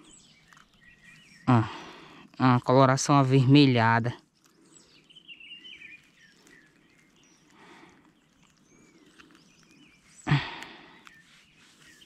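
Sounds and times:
birds chirping faintly: 0.0 - 12.0.

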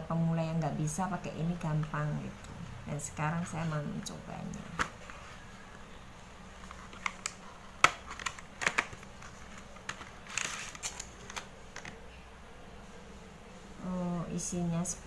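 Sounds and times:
package rustle: 6.6 - 12.1
package clicks and taps: 6.9 - 12.0.

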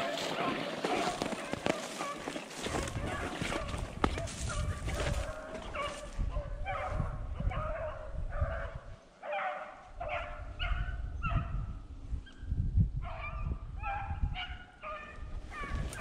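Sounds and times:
rustling through brush: 0.0 - 6.3, 15.4 - 16.0
wind noise: 0.0 - 9.0, 9.9 - 16.0
dogs baying: 0.0 - 11.5.

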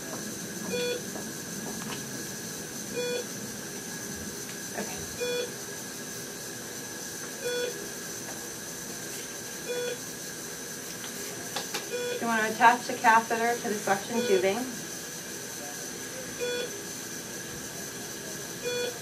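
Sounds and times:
steady electrical hiss: 0.0 - 19.0
medical equipment beeping: 0.7 - 1.0, 5.2 - 5.5, 11.9 - 12.3, 13.8 - 14.7, 16.4 - 16.8, 18.6 - 19.0.

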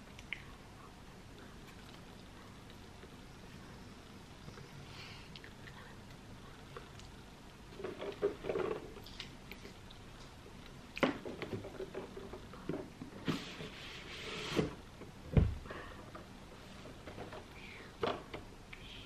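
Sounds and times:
box sliding open: 13.2 - 14.8.

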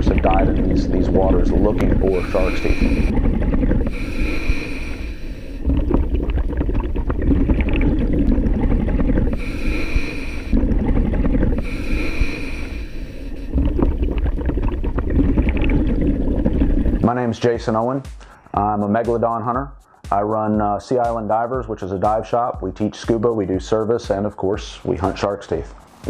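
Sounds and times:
bubbling exhale: 0.0 - 17.0
hissing regulator inhale: 1.2 - 6.2, 7.9 - 14.4.

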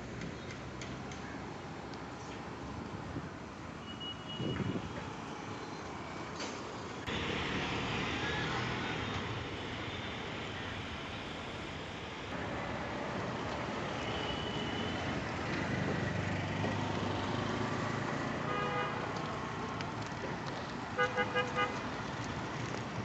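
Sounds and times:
passing road traffic: 0.0 - 23.0
loud engine passing: 15.0 - 18.5.

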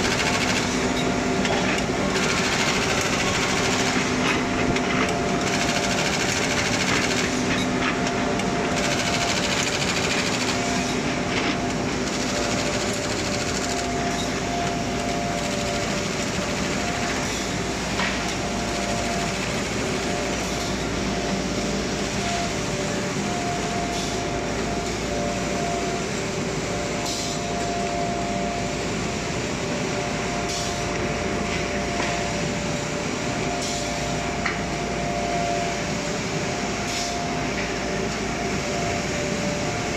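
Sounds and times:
machine clatter: 0.0 - 20.9
machine whining tone: 0.0 - 39.9.

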